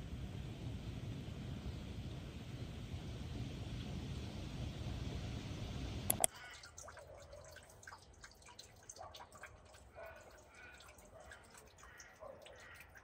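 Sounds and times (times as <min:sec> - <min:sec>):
rain hiss: 0:00.0 - 0:06.3
sharp click: 0:06.1 - 0:06.3
water drips plinking: 0:06.1 - 0:13.0.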